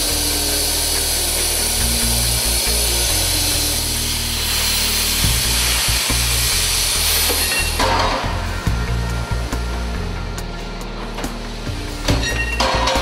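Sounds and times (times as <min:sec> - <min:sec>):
plasma torch hissing: 0:00.0 - 0:10.4
background music with bass: 0:00.0 - 0:13.0.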